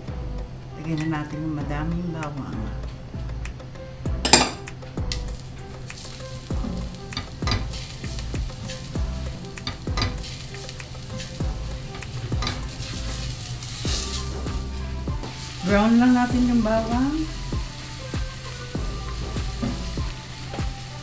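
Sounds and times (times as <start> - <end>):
garlic sizzling in oil: 4.3 - 21.0.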